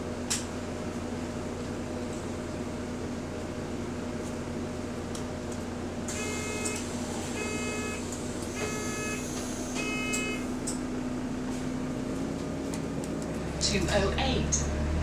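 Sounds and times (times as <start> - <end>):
bus engine hum: 0.0 - 15.0
short electronic beeps: 6.2 - 6.8, 7.4 - 8.0, 8.6 - 10.4.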